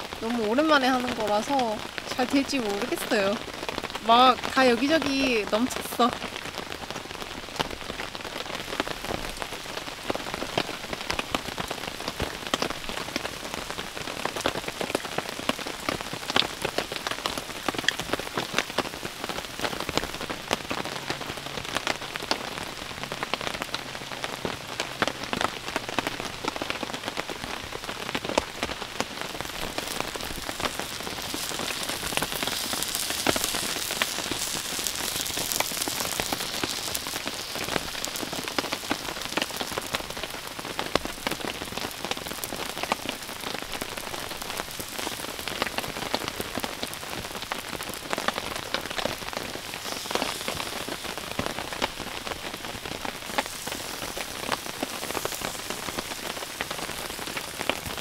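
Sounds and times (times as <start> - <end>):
rain pattering on tent fabric: 0.0 - 58.0
batter sizzling in a pan: 28.4 - 58.0.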